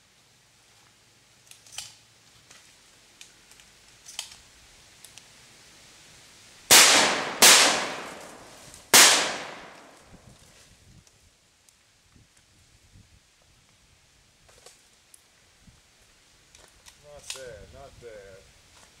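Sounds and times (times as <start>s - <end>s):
shotgun shots echoing: 6.7s - 10.1s.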